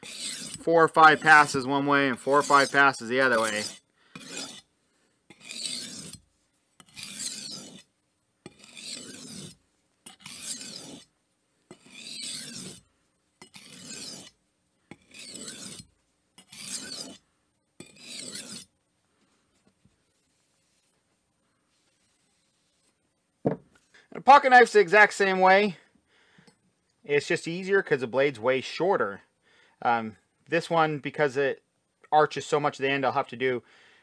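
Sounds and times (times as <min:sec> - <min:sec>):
knife scraping on sharpening stone: 0:00.0 - 0:04.7, 0:05.3 - 0:11.1, 0:11.7 - 0:12.8, 0:13.4 - 0:17.2, 0:17.8 - 0:18.7.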